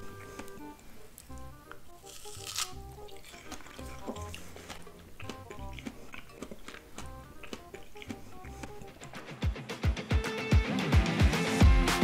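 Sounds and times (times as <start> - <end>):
mouth chewing crisp fruit: 0.0 - 9.3
background music with low beat: 0.0 - 12.0.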